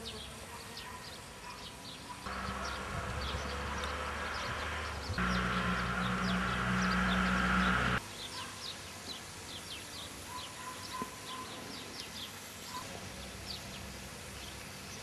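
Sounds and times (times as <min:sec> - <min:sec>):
small birds chirping: 0:00.0 - 0:15.0
loud mechanical hum: 0:02.3 - 0:08.0.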